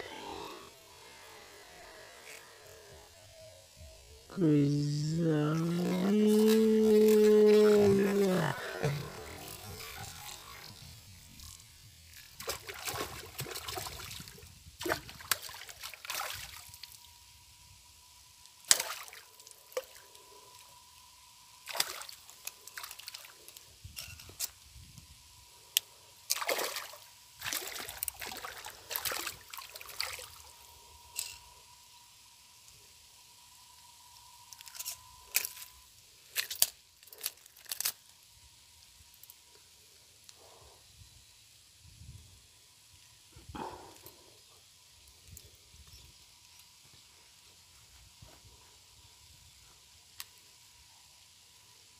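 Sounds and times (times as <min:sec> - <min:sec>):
fish splashing in water: 0:18.6 - 0:20.0, 0:21.6 - 0:23.3, 0:26.3 - 0:30.4.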